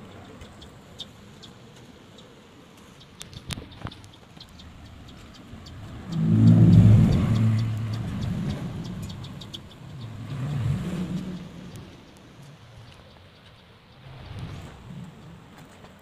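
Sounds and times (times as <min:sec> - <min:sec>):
vehicle engine passing by: 0:04.5 - 0:13.2, 0:13.9 - 0:15.8.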